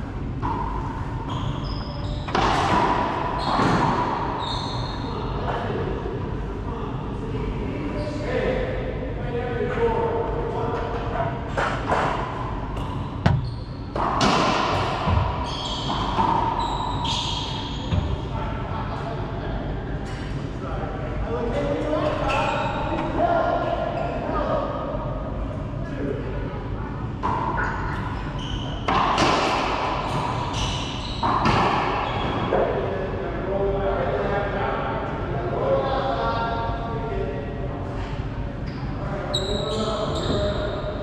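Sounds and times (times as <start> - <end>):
sneakers squeaking on floor: 0.4 - 5.3, 12.7 - 18.4, 22.0 - 23.1, 27.5 - 29.3, 30.1 - 32.6, 38.7 - 40.9
racquet striking ball: 2.2 - 4.4, 11.5 - 16.6, 28.8 - 30.5, 31.2 - 32.0
ball bouncing on hardwood floor: 13.2 - 14.5
racquetball hits ringing: 13.2 - 16.6.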